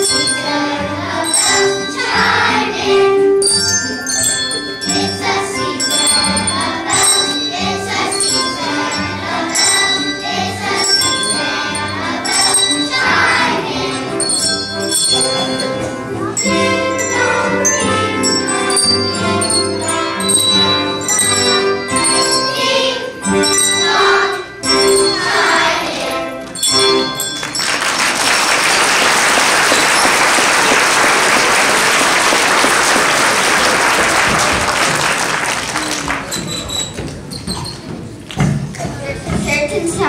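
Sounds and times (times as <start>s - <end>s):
children singing: 0.0s - 3.4s, 4.4s - 14.6s, 15.2s - 35.3s
handbells ringing: 0.0s - 38.0s
audience applauding: 27.3s - 36.7s.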